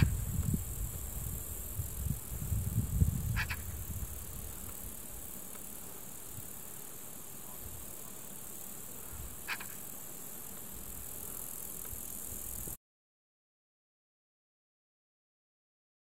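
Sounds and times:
steady high hiss: 0:00.0 - 0:12.8
bird call: 0:09.4 - 0:09.8.

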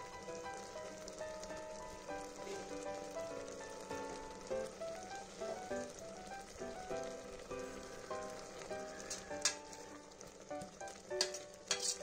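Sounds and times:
pot bubbling at a boil: 0:00.0 - 0:12.0
soft melodic background music: 0:00.0 - 0:12.0
ladle clinking against steel pot: 0:11.2 - 0:12.0.

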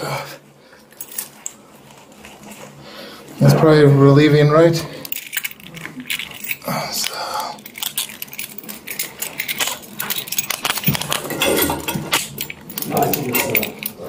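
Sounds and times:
handcuffs clinking and clicking: 0:05.0 - 0:14.0.

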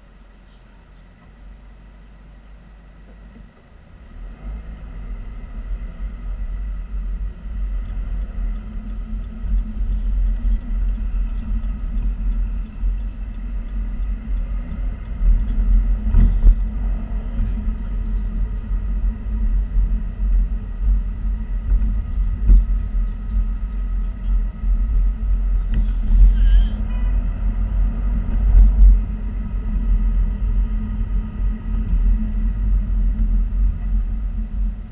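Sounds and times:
car engine and road rumble: 0:00.0 - 0:34.9.

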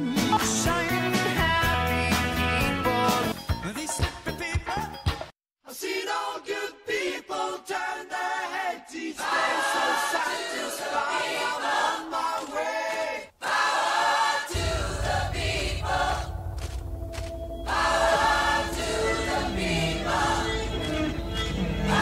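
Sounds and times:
vocal group singing in harmony: 0:05.7 - 0:16.8, 0:17.5 - 0:22.0
deep bass backing: 0:14.6 - 0:22.0.

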